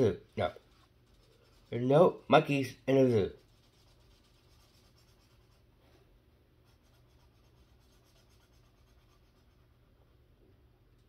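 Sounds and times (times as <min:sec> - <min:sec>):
felt-tip marker scratching paper: 0:00.0 - 0:01.9, 0:03.1 - 0:05.6, 0:06.6 - 0:09.8.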